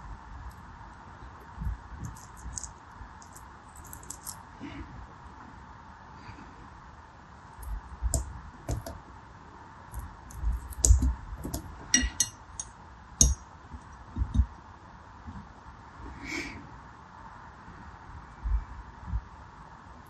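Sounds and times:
knife crunching soap beads: 0:02.0 - 0:04.4.

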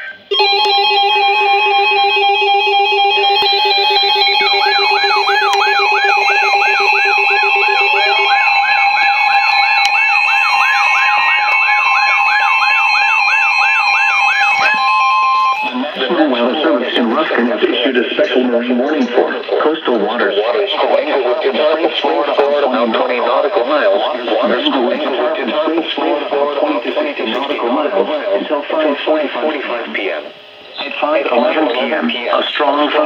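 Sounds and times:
electronic alarm beeps: 0:00.0 - 0:17.0
warbling alarm tone: 0:00.0 - 0:33.0.

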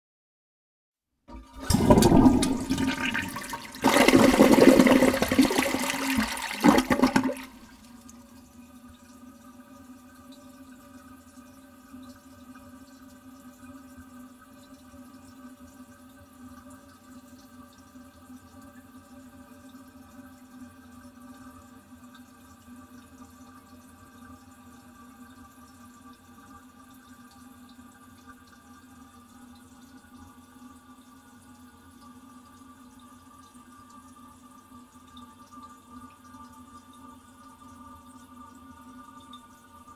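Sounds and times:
toilet flushing: 0:01.3 - 0:13.5.

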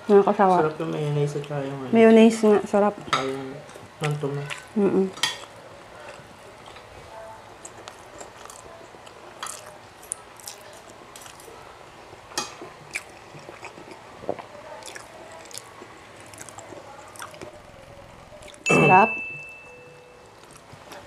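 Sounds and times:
person chewing food: 0:03.2 - 0:18.7, 0:19.8 - 0:21.0.

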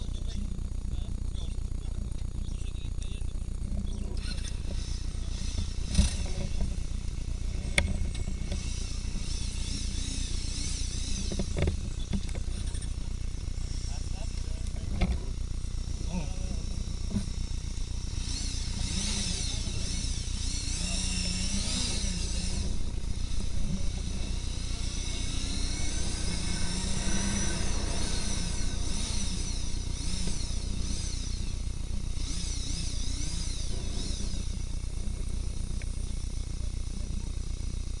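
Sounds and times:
motorcycle engine and wind rumble: 0:00.0 - 0:38.0
high sweeping chirping: 0:17.6 - 0:34.4.

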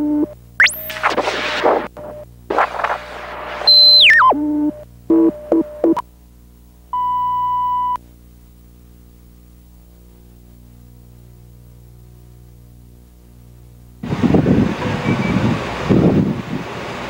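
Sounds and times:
low steady hum: 0:00.0 - 0:14.1
high electronic tone sliding down: 0:00.6 - 0:04.4
steady reference tone: 0:00.6 - 0:04.4.

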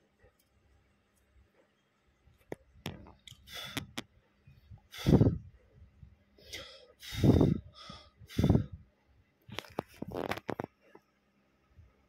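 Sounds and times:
breath-like puffs of air: 0:03.3 - 0:04.0, 0:04.7 - 0:05.6, 0:06.4 - 0:08.8.

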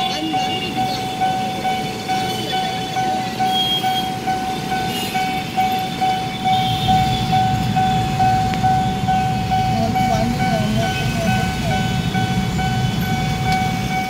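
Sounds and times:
level crossing warning bell: 0:00.0 - 0:14.0.

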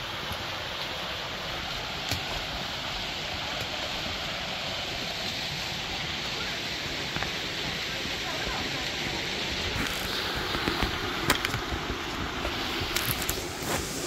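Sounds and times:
water rushing over rocks: 0:00.0 - 0:14.0.

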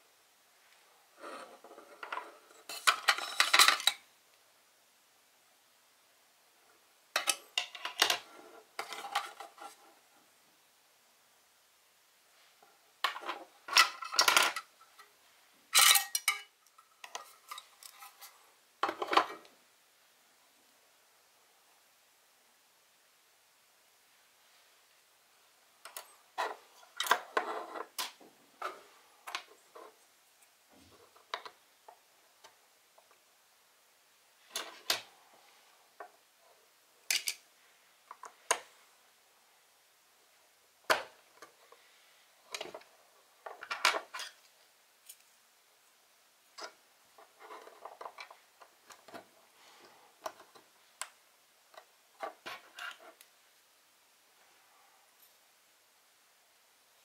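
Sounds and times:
plastic parts clicking together: 0:37.1 - 0:37.4.

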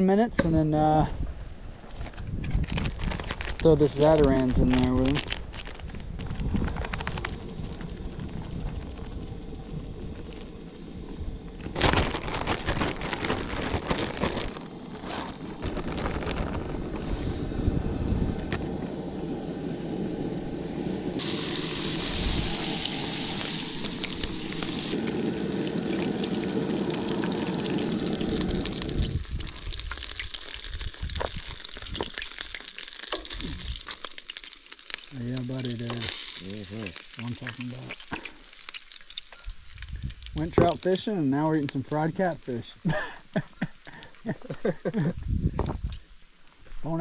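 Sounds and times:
liquid pouring: 0:21.1 - 0:41.0.

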